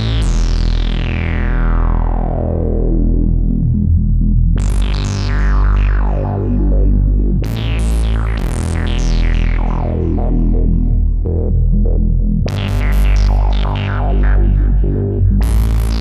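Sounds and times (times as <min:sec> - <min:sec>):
synthesizer lead with filter sweeps: 0:00.0 - 0:16.0.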